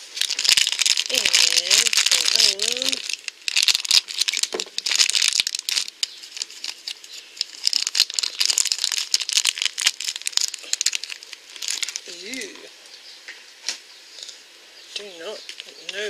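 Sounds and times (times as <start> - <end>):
plastic wrapper crinkling: 0.0 - 12.6.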